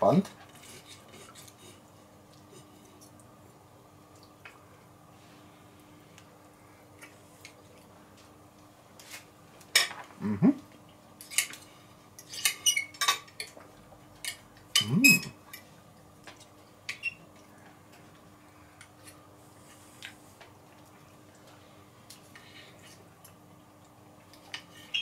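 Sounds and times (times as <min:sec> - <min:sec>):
person humming mm: 0:10.2 - 0:10.6, 0:14.8 - 0:15.3.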